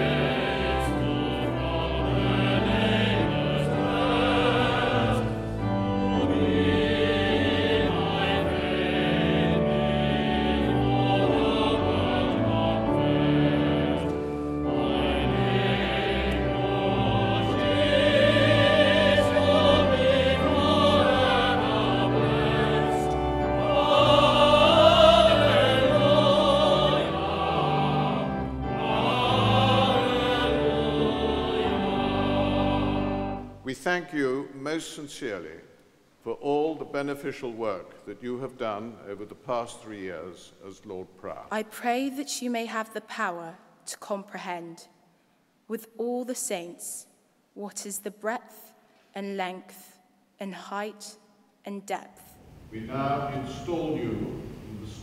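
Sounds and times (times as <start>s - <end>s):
choir singing sacred piece: 0.0s - 34.4s, 52.6s - 55.0s.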